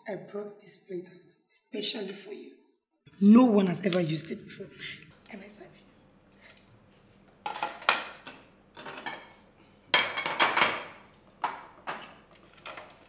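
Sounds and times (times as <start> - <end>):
cutlery clinking on plates: 7.5 - 9.4, 10.0 - 12.9.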